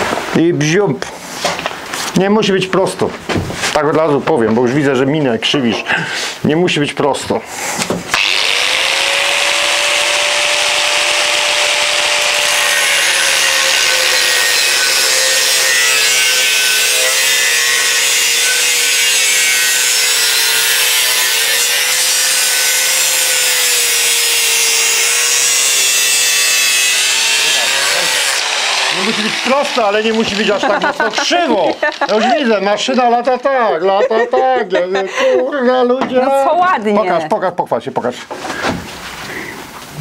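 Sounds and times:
angle grinder cutting steel: 8.1 - 33.4.

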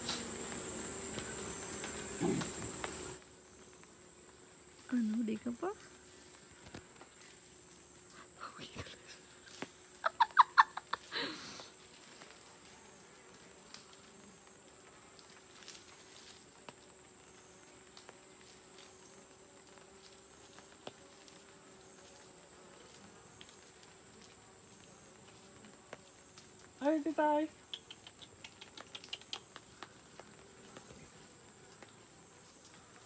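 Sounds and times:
bees buzzing: 0.0 - 8.1.

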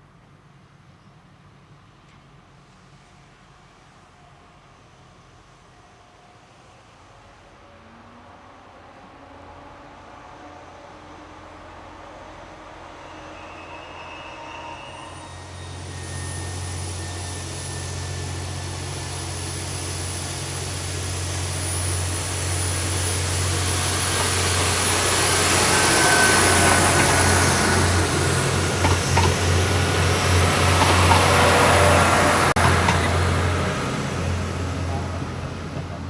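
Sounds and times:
diesel train drone: 0.0 - 36.0
wheels rushing on rails: 12.5 - 36.0.

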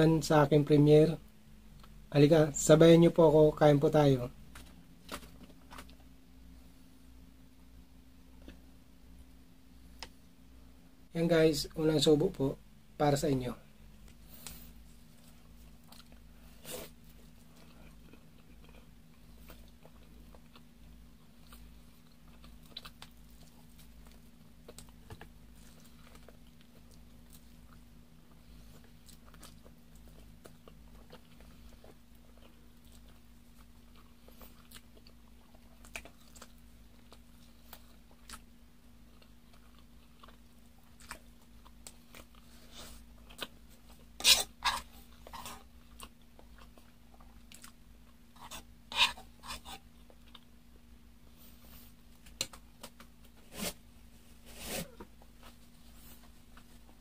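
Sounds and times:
steady low hum: 0.0 - 57.0
person chewing: 14.0 - 50.6.

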